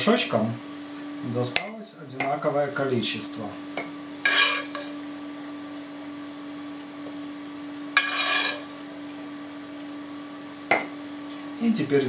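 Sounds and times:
steady low hum: 0:00.0 - 0:12.0
spoon scraping skillet: 0:04.2 - 0:05.0, 0:08.0 - 0:08.8.

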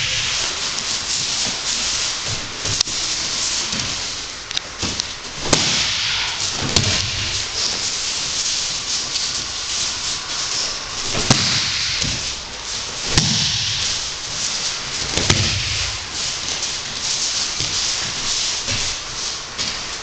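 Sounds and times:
steady hiss: 0:00.0 - 0:20.0
body thuds on mats: 0:04.8 - 0:08.0, 0:11.0 - 0:19.9.

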